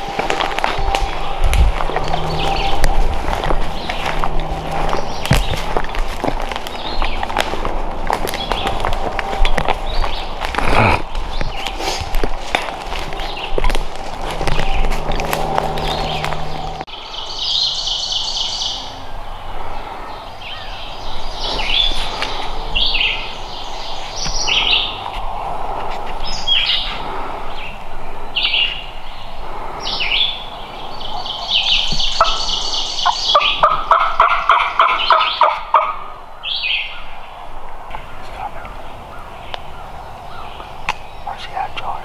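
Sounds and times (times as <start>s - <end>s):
songbird chirps: 0.0s - 42.0s
turkey yelping: 31.0s - 36.7s.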